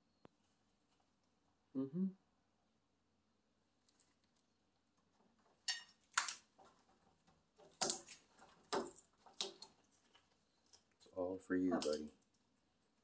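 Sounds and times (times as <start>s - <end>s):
parrot beak cracking wood: 5.5s - 11.1s.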